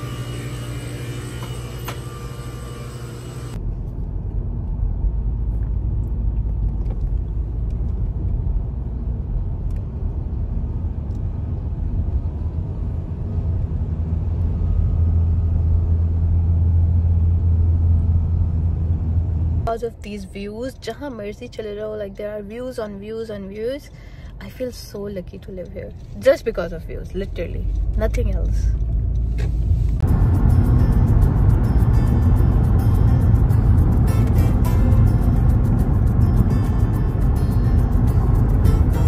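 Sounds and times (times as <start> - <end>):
freezer hum with steady tones: 0.0 - 3.6
car road rumble from cabin: 3.5 - 23.8, 24.4 - 39.0.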